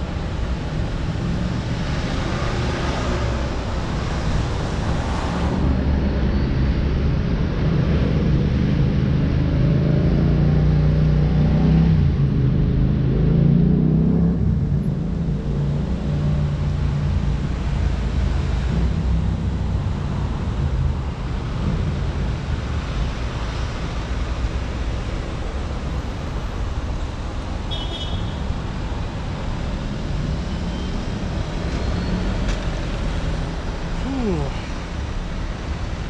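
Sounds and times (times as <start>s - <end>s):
road traffic noise: 0.0s - 36.0s.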